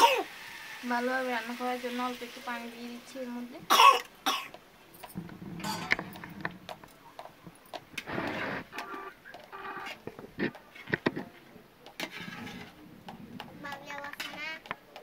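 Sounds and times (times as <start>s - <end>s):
metal ladle scraping pot: 5.2s - 6.6s, 12.0s - 14.6s
hens clucking: 5.7s - 11.1s.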